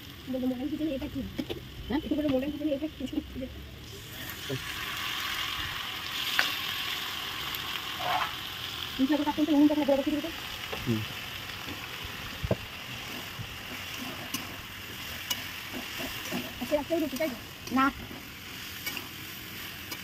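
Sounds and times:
food sizzling in a wok: 0.0s - 20.0s
metal spatula clicking on pan: 15.2s - 17.9s, 18.8s - 19.1s.

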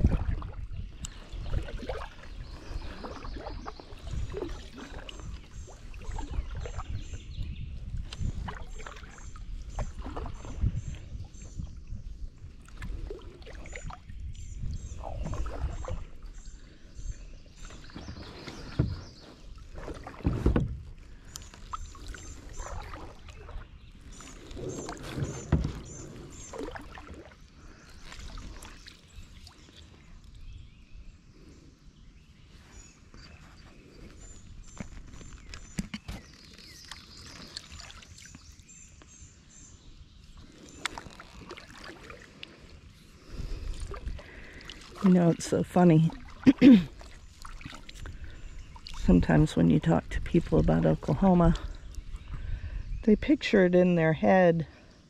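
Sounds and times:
paddle strokes in water: 0.0s - 31.7s, 32.4s - 52.9s
paddle knocking against hull: 17.6s - 23.6s, 24.2s - 27.3s.

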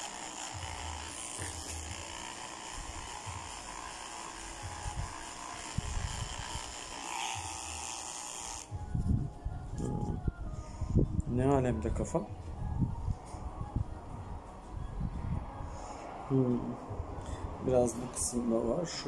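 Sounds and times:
electric pet clippers running: 0.0s - 8.8s.

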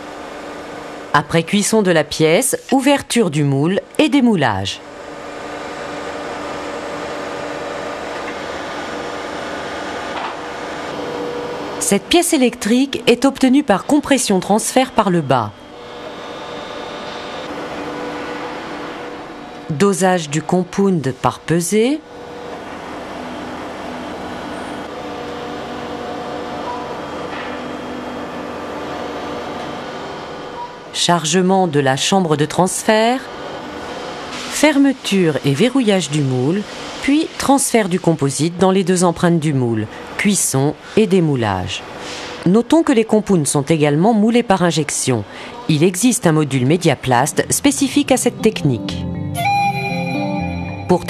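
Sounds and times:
press machine humming and hissing: 0.0s - 1.2s, 4.8s - 11.8s, 12.4s - 19.7s, 22.0s - 30.9s, 33.3s - 35.1s, 36.0s - 37.6s.

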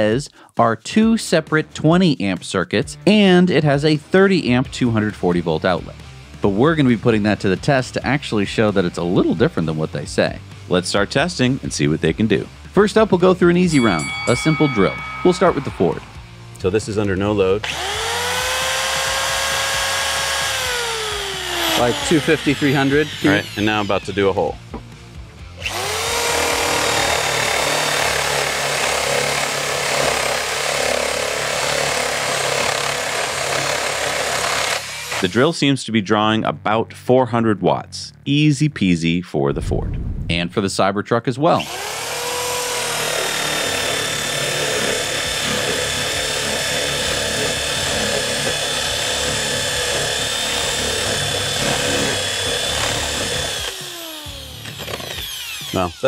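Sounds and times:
electric drill boring into wood: 17.6s - 24.6s, 25.6s - 35.4s, 41.6s - 56.0s.

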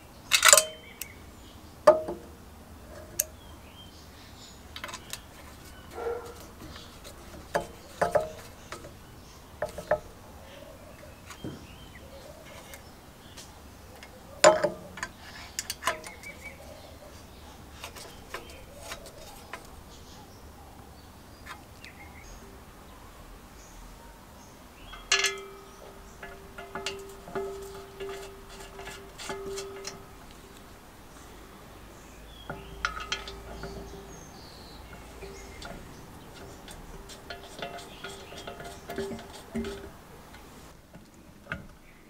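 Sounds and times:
screwdriver clicking and tapping metal: 0.3s - 1.1s, 24.9s - 30.7s, 32.5s - 34.2s, 34.9s - 40.6s.

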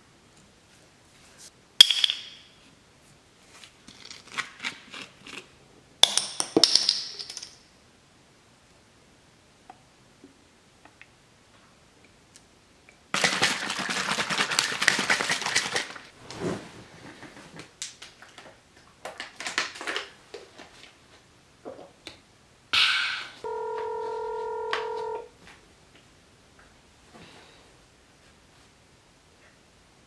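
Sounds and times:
juice splashing into plastic bottle: 13.2s - 16.0s
smartphone electronic beep: 23.4s - 25.2s.

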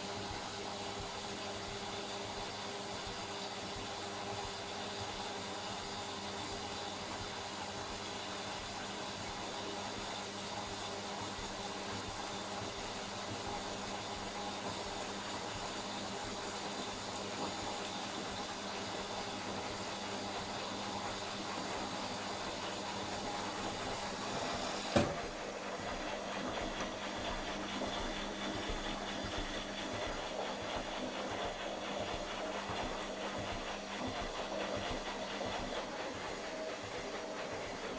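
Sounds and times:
washing machine spinning: 0.0s - 37.9s.

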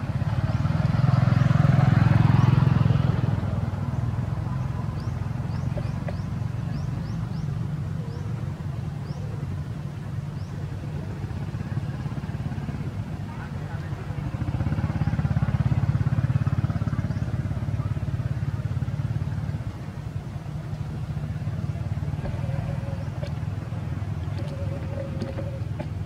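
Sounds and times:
vehicle engine rumbling: 0.0s - 26.0s.

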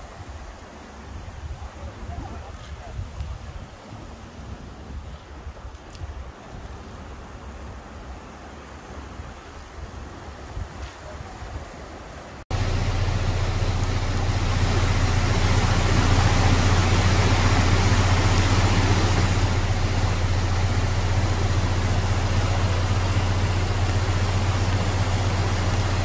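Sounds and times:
rushing floodwater: 0.0s - 26.0s
constant low hum: 12.5s - 26.0s.

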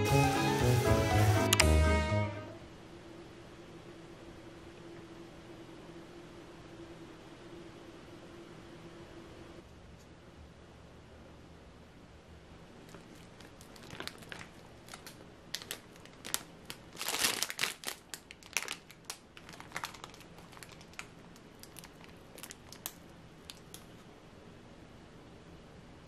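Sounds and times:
plastic bags crinkling: 12.8s - 24.0s.

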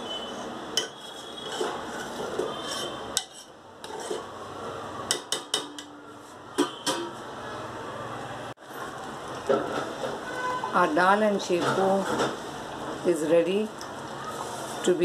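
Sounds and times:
ladle scraping cooking pot: 0.0s - 4.3s.

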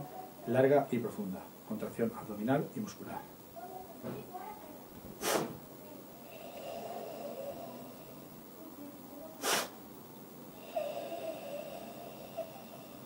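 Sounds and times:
short explosive inhalation: 5.2s - 5.6s, 9.4s - 9.8s
long forced exhalation: 5.2s - 8.6s, 9.4s - 9.8s, 10.5s - 13.0s.

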